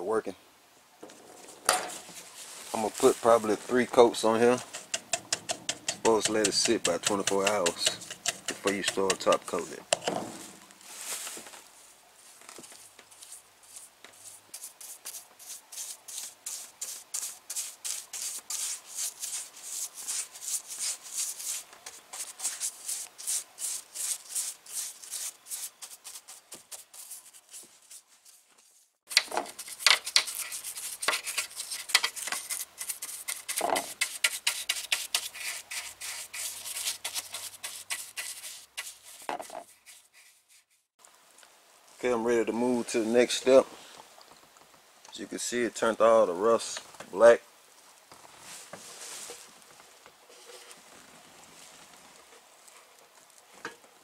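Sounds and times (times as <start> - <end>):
brush scrubbing metal: 1.9 - 9.9, 12.6 - 40.8.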